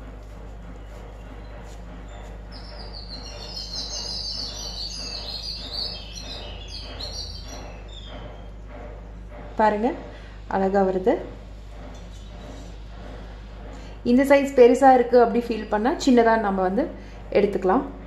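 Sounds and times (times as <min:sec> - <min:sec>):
birds chirping: 0:00.6 - 0:08.7.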